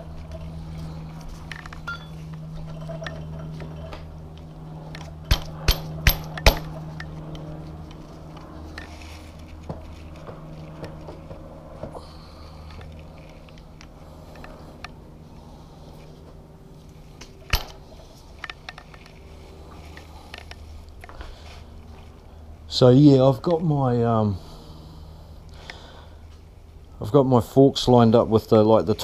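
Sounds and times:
steady low hum: 0.0 - 29.0
sharp metal clinks: 1.5 - 3.9, 5.2 - 7.1.

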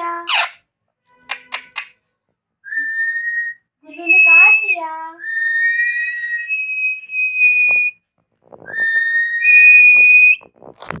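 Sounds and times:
parakeet whistling: 2.6 - 8.0, 8.6 - 10.4.

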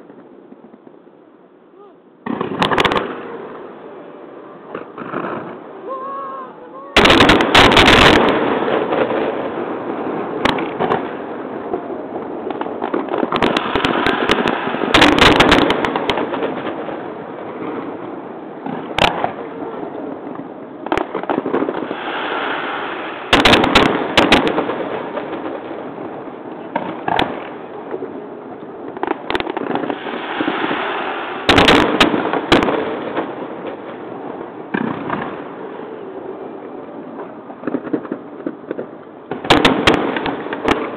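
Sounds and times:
fireworks crackling: 0.0 - 40.9
firework shells booming: 2.2 - 3.3, 7.0 - 18.0, 20.4 - 28.1, 28.9 - 35.6, 37.1 - 40.9.

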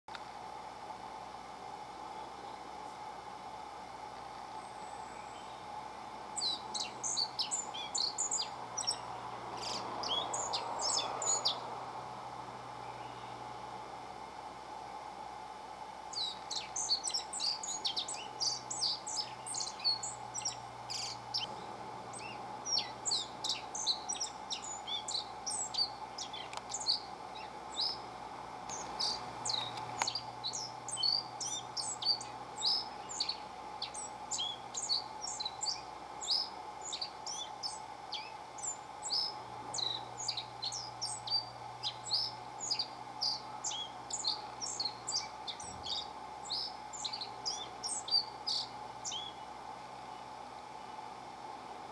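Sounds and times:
faint steady hum: 0.1 - 51.9
bunting singing high sharp notes: 16.1 - 28.1, 28.7 - 49.3.

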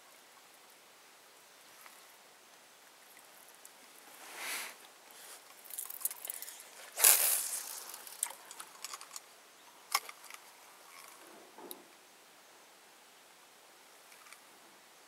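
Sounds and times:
fishing reel clicks and rattles: 5.7 - 9.2.

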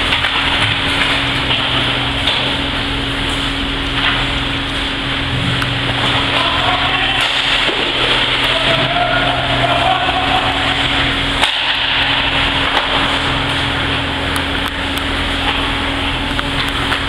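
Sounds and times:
steady hiss and low hum: 0.0 - 17.0
sticks and puck clacking: 5.6 - 13.3.

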